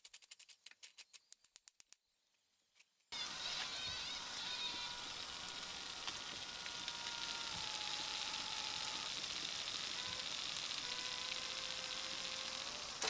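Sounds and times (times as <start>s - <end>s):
fried food sizzling and crackling: 3.1s - 13.0s.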